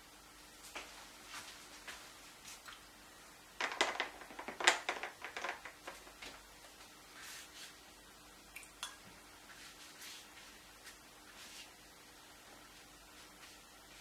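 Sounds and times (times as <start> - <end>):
brush swishing across paper: 7.1 - 7.8, 9.5 - 11.8.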